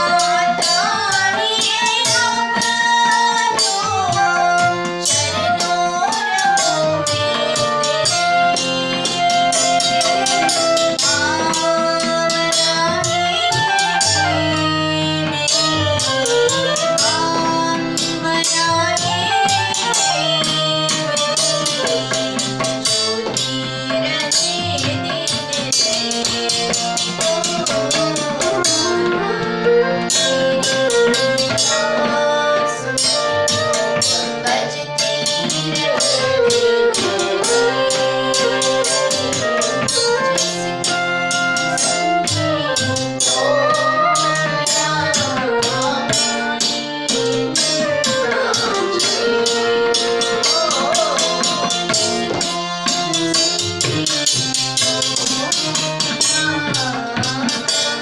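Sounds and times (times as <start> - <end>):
harmonium: 0.0 - 58.0
flute melody: 4.1 - 17.8, 27.3 - 35.2, 47.1 - 52.5
hand drum beat: 15.6 - 58.0.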